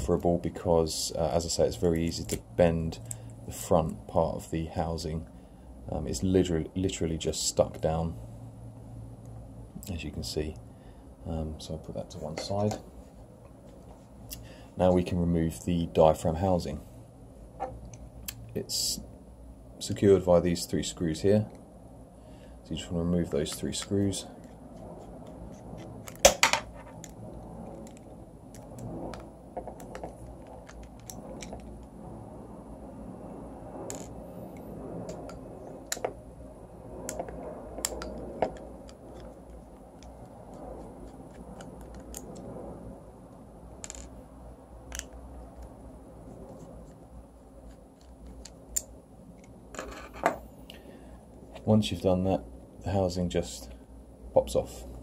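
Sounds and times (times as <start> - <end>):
light scraping and handling: 46.2 - 48.8, 49.4 - 50.4
parts set down on wooden table: 49.8 - 50.4.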